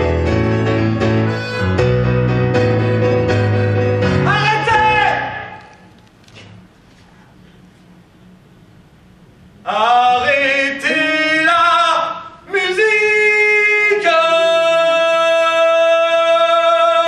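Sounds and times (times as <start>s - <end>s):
man singing loudly: 4.2s - 5.6s, 9.7s - 17.0s.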